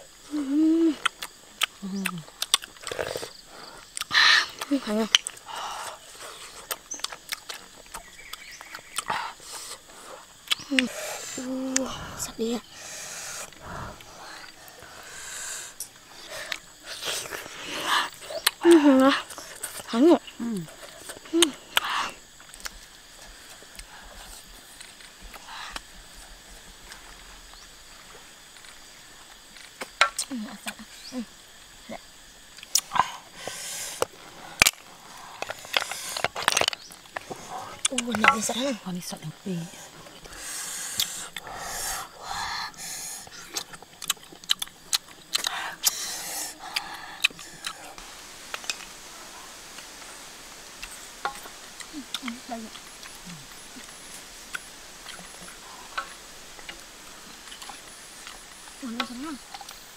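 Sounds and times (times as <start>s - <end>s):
high insect drone: 0.0s - 59.9s
handling and eating noises: 15.7s - 31.5s, 32.4s - 42.2s, 43.2s - 59.9s.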